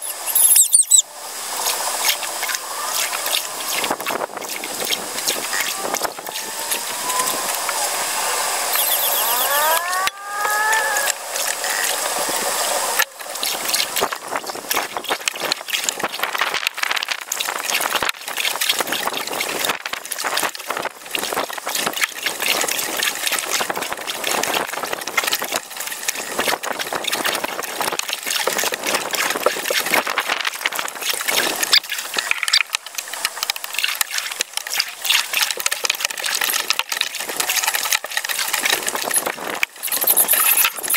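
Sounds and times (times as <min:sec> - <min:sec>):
short rising and falling whistles: 0:00.0 - 0:01.0, 0:08.7 - 0:10.0
paddle splashing water: 0:00.0 - 0:40.9.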